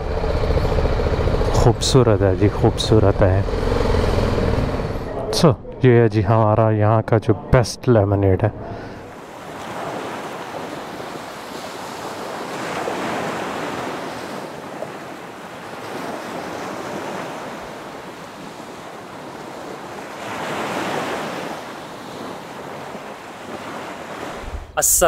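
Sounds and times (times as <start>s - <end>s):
surf breaking on beach: 9.0s - 24.8s.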